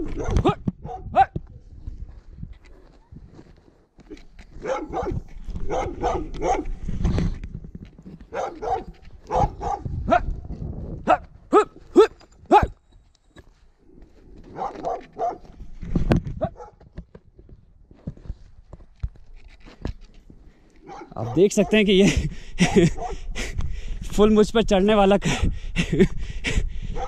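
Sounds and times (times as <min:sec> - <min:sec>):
dog barking: 0:00.0 - 0:01.4, 0:04.6 - 0:06.7, 0:08.3 - 0:10.3, 0:14.5 - 0:15.5, 0:16.4 - 0:16.8, 0:20.8 - 0:21.8, 0:22.9 - 0:23.2.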